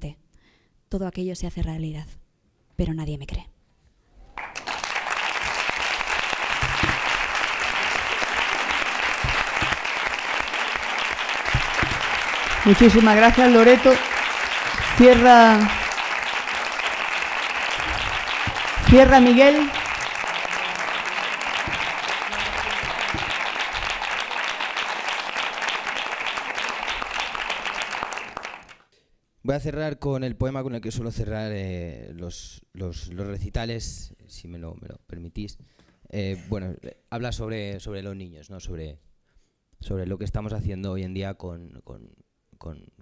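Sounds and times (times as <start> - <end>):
audience applause: 4.4 - 28.8.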